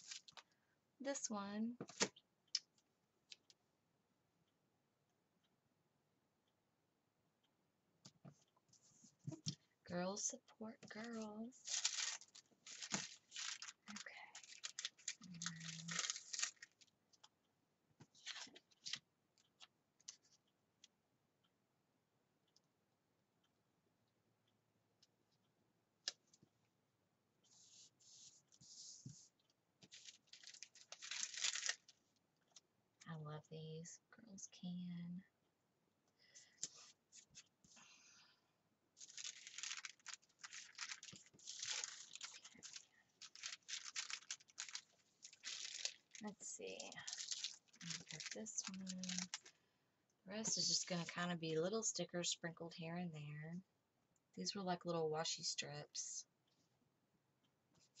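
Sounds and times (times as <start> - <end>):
paper sticker rustling: 39.0 - 49.5.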